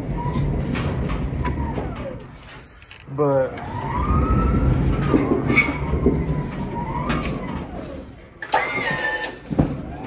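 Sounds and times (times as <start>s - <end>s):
low engine rumble: 0.0s - 8.4s
siren wailing: 3.5s - 9.4s.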